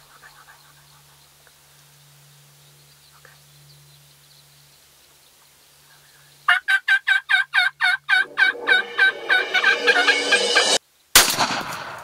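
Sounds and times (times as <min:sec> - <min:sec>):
turkey gobbling: 0:06.5 - 0:10.1.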